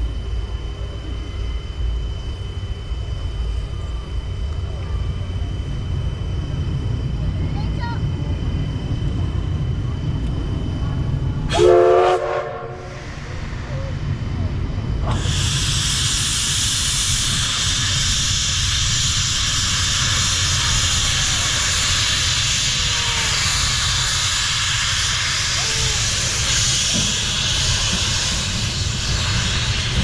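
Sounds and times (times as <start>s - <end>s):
locomotive venting steam: 9.1s - 30.0s.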